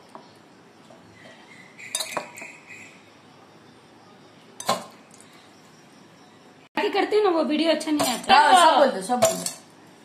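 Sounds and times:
metal spoon clinking on plate: 1.9 - 2.5, 9.2 - 9.7.

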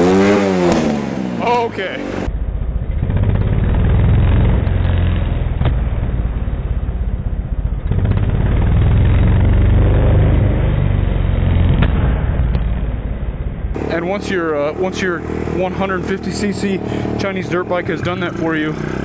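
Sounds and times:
exhaust backfire pop: 0.0 - 1.4, 2.2 - 13.9
dirt bike engine revving: 0.0 - 2.3, 2.9 - 5.6, 7.8 - 12.0, 13.7 - 19.0.

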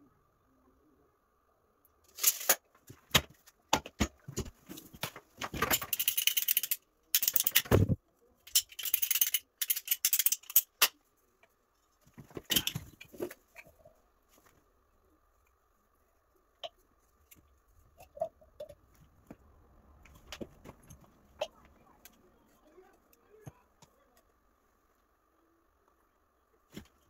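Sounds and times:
tools clicking and rattling: 4.8 - 11.0.

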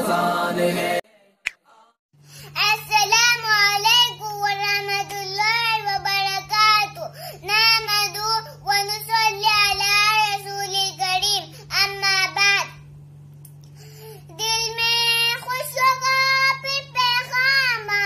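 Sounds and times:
girl singing unaccompanied: 2.6 - 12.4, 14.3 - 18.0
short breaths: 13.6 - 14.3.

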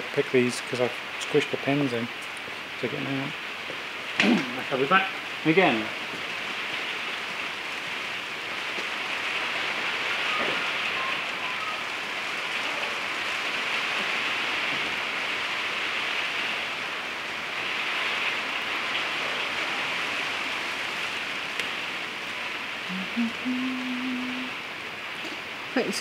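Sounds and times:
heavy rain hissing: 0.0 - 26.0
low hum: 22.8 - 24.6.

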